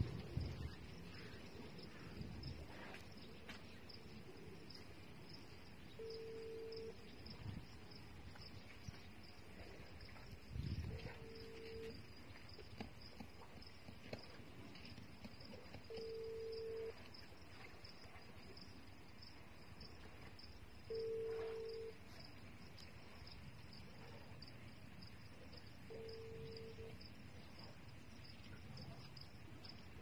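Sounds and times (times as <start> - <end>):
crickets chirping: 0.0 - 30.0
telephone ringback tone: 6.0 - 7.0, 11.2 - 11.9, 15.9 - 17.0, 20.9 - 22.0, 25.9 - 27.0.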